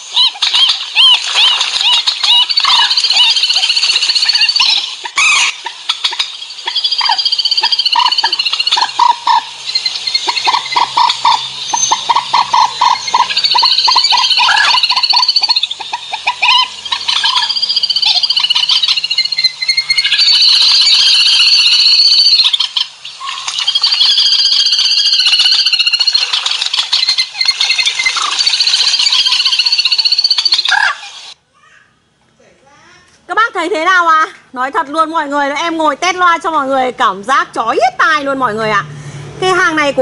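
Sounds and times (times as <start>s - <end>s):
recorded bird calls through speaker: 0.0s - 31.8s.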